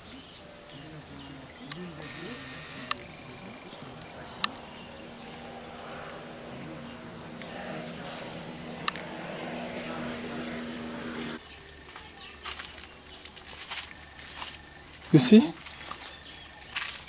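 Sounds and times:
high-pitched insect buzz: 0:00.0 - 0:17.0
low steady hum: 0:00.0 - 0:17.0
sharp clicks: 0:01.6 - 0:01.9, 0:08.8 - 0:09.1.

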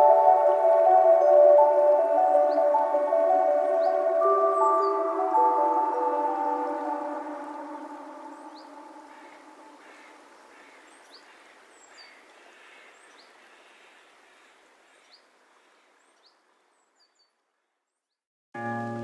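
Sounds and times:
lo-fi music: 0:00.0 - 0:09.0, 0:18.6 - 0:19.0
bird chirps: 0:00.0 - 0:10.1
soft outdoor hiss: 0:00.0 - 0:19.0.

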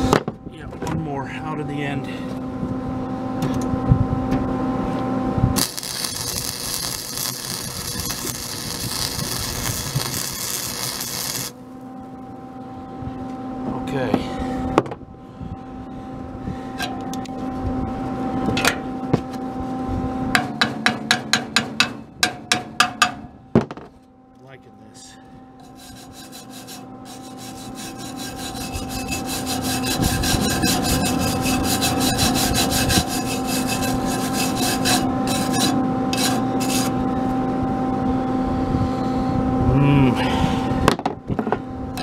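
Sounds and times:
wire brush scrubbing metal: 0:05.6 - 0:11.6, 0:25.6 - 0:37.0.

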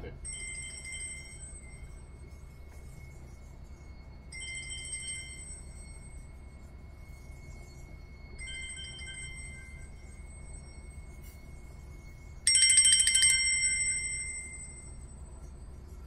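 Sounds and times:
bell ringing: 0:00.2 - 0:02.1, 0:04.3 - 0:06.6, 0:08.2 - 0:16.0.

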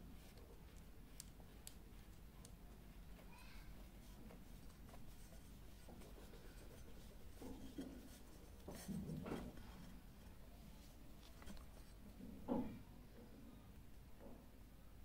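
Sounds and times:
faint scratching: 0:01.7 - 0:12.3.

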